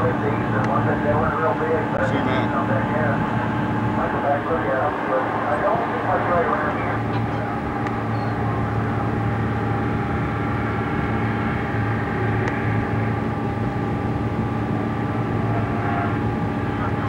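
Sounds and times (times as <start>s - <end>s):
engine drone: 0.0s - 17.0s.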